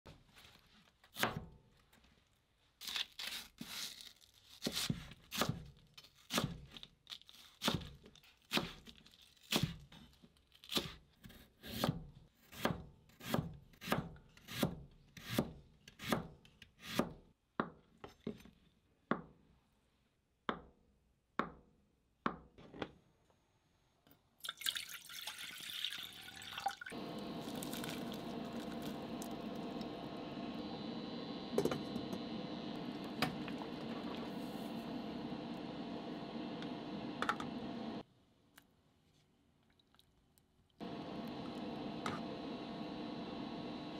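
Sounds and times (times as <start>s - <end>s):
water boiling in pot: 24.4s - 30.8s, 31.5s - 36.2s
steady hum: 27.0s - 38.0s, 40.8s - 43.9s.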